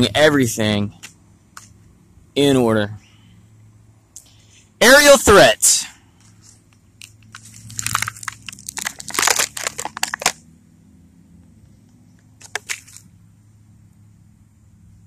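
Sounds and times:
plastic packaging crackling: 0:07.4 - 0:10.4.

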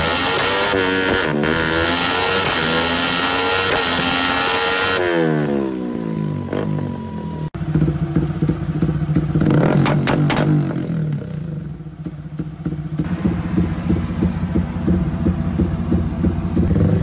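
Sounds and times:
motorcycle engine revving: 0:00.0 - 0:17.0
motorcycle exhaust settling to idle: 0:06.4 - 0:17.0.

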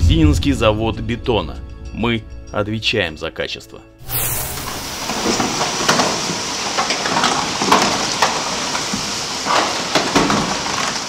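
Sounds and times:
mechanical hiss: 0:04.0 - 0:09.4
mechanical clanks and knocks: 0:04.6 - 0:11.0.

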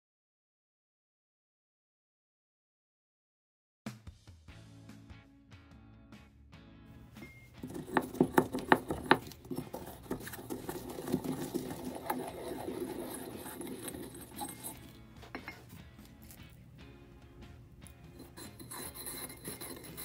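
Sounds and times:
pestle tapping in mortar: 0:07.2 - 0:15.8
pestle scraping in mortar: 0:07.2 - 0:16.6, 0:17.8 - 0:20.0.

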